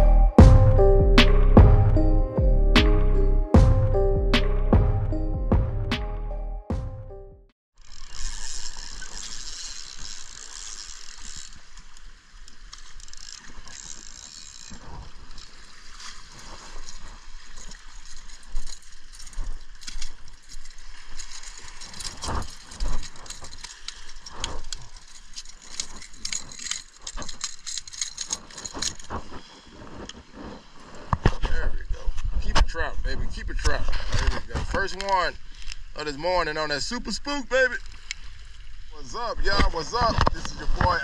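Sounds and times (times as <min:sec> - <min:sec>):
fishing reel clicking and ratcheting: 0:07.8 - 0:15.6, 0:17.6 - 0:29.2.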